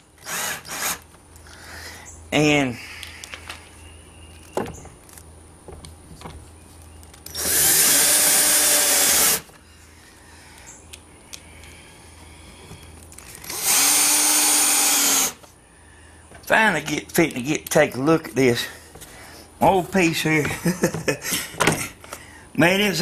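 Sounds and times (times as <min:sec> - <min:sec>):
cordless drill driving screws: 0:00.2 - 0:01.1, 0:07.3 - 0:09.5, 0:13.4 - 0:15.4.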